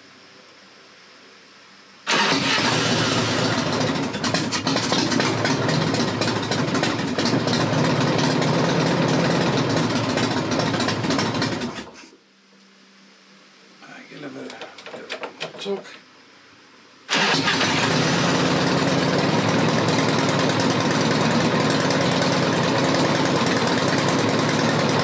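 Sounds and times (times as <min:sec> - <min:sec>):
motorcycle engine running: 0:02.1 - 0:12.1, 0:17.1 - 0:25.0.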